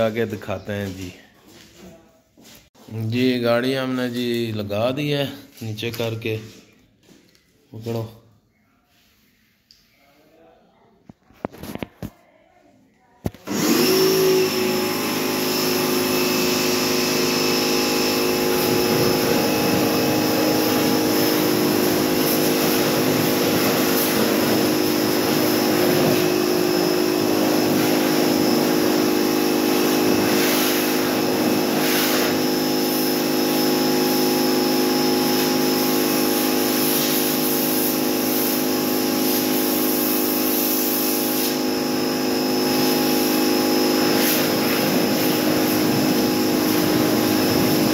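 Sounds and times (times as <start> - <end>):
pressure washer motor hum: 13.4 - 47.9
water spray hissing: 18.2 - 33.4, 35.4 - 41.7, 42.8 - 47.9.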